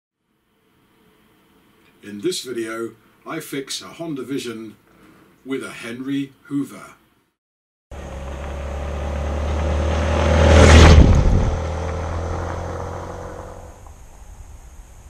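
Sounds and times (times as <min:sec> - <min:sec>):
vehicle driving past: 0:07.9 - 0:14.0.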